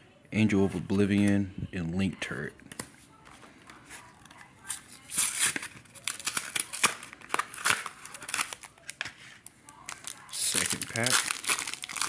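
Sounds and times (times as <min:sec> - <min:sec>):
plastic packaging crackling: 0:03.7 - 0:12.0.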